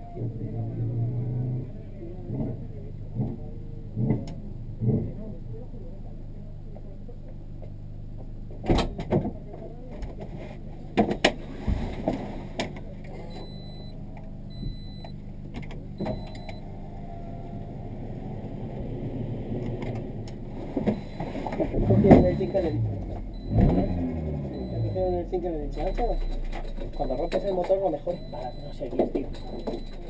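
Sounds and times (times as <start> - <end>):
car engine idling: 0.0 - 30.0
clicks and knocks from controls: 3.2 - 5.2, 7.6 - 16.6, 25.8 - 30.0
short electronic beeps: 13.2 - 15.2, 16.0 - 17.6, 20.9 - 30.0.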